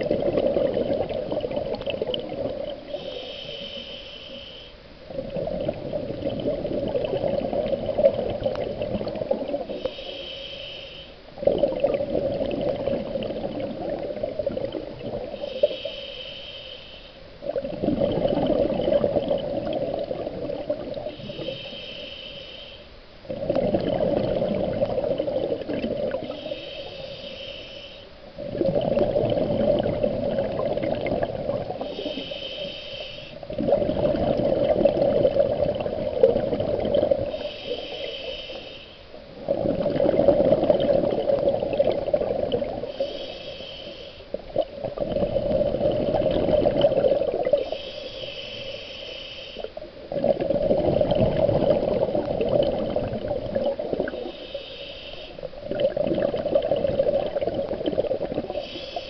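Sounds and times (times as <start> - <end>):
exhaled bubbles rushing: 0.0 - 2.8, 5.1 - 9.8, 11.4 - 15.4, 17.4 - 21.1, 23.3 - 26.4, 28.4 - 31.8, 33.4 - 37.4, 39.4 - 42.9, 44.5 - 47.8, 50.1 - 54.3, 55.6 - 58.6
regulator inhale hiss: 2.8 - 5.1, 9.5 - 11.4, 15.2 - 17.4, 21.0 - 23.2, 25.5 - 28.4, 31.5 - 33.6, 36.2 - 39.2, 42.6 - 44.5, 47.3 - 50.0, 54.0 - 55.9, 58.3 - 59.0.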